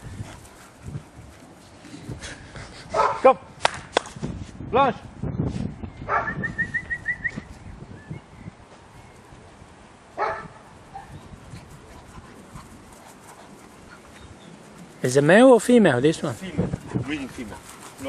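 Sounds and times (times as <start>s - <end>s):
dog barking: 2.9s - 3.3s, 6.1s - 6.4s, 10.2s - 11.1s.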